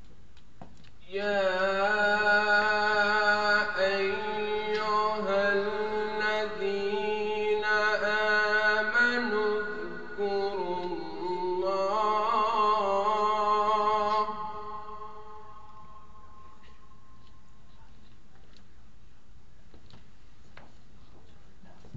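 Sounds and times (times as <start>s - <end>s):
man chanting melodically: 1.0s - 16.6s.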